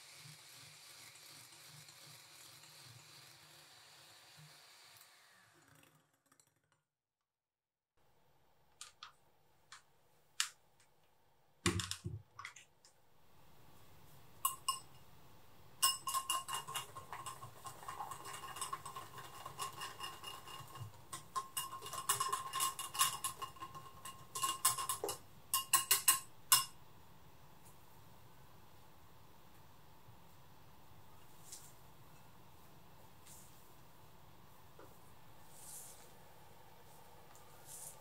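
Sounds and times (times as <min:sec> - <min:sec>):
whisk clinking in glass bowl: 0:14.4 - 0:15.0, 0:15.8 - 0:26.8.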